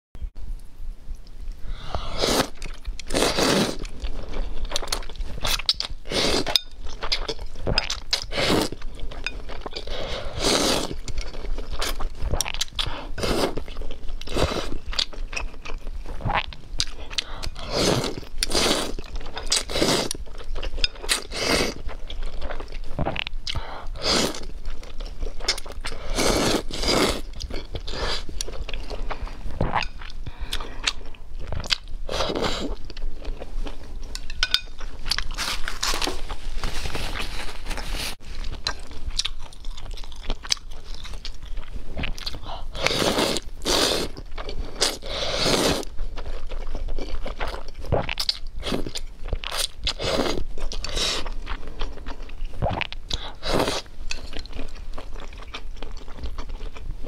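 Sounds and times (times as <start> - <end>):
noodles being slurped: 2.1 - 3.9
chewing: 38.4 - 56.8.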